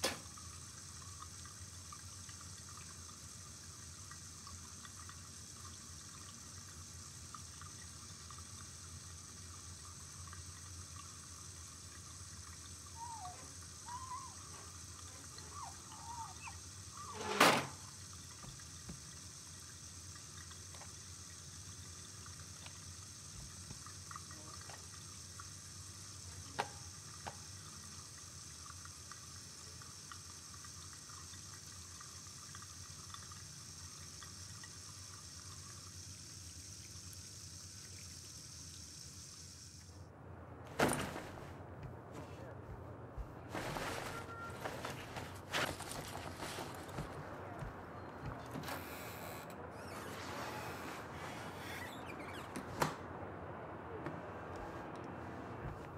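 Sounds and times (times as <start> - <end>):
tap water running: 0.0 - 40.0, 42.6 - 53.0
short squeaks: 15.5 - 17.8, 48.0 - 52.8.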